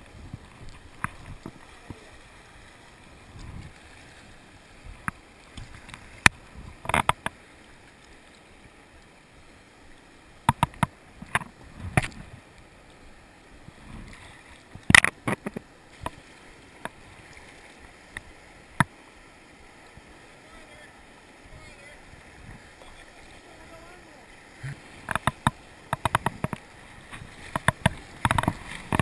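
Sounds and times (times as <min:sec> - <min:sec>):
water slapping plastic kayak: 0:00.0 - 0:08.3, 0:21.5 - 0:29.0
rush of whitewater rapids: 0:00.0 - 0:29.0
paddle knocks and splashes: 0:24.6 - 0:29.0.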